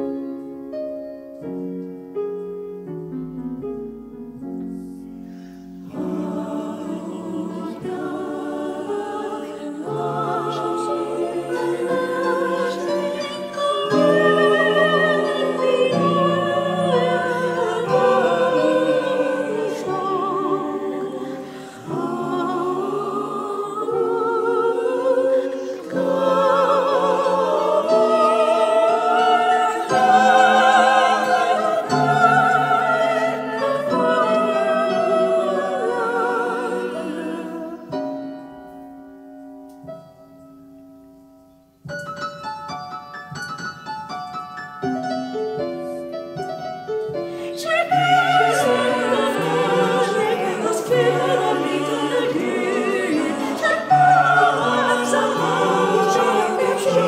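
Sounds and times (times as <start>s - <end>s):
choir singing: 0.0s - 0.2s, 5.8s - 38.3s, 47.3s - 57.0s
piano playing: 0.0s - 57.0s.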